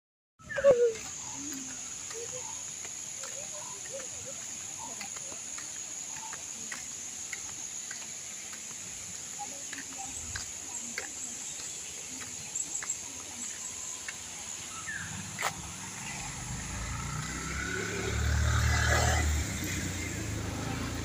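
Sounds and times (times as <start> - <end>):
insects droning: 0.4 - 21.0
vehicle engine approaching: 13.8 - 21.0.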